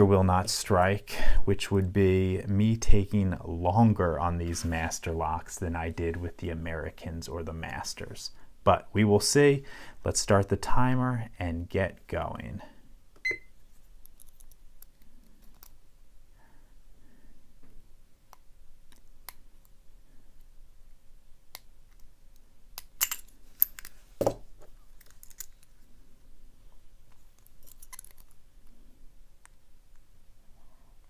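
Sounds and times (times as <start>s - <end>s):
digital timer beep: 13.2s - 13.5s
lock picking clicks and scrapes: 25.0s - 25.7s, 27.1s - 28.4s.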